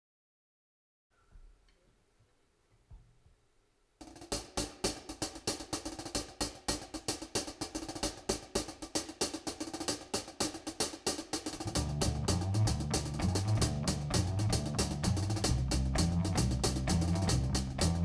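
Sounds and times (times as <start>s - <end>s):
jazz drum kit played with sticks: 4.0s - 18.0s
held pitched notes: 11.5s - 18.0s.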